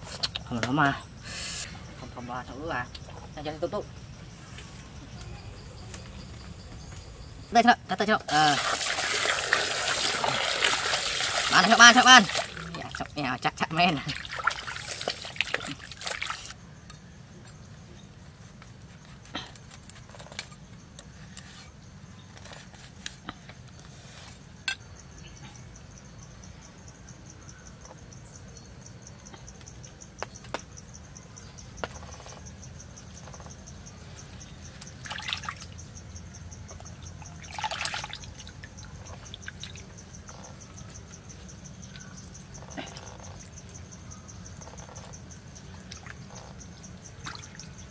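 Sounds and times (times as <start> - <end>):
pulsing insect trill: 0.0 - 17.7, 24.6 - 47.9
water splashing in a basin: 8.0 - 16.6, 34.8 - 35.8, 36.7 - 40.0, 47.2 - 47.9.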